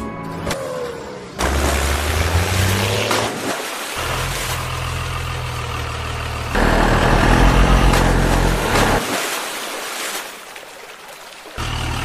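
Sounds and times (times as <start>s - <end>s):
heavy truck engine idling: 4.7s - 9.0s.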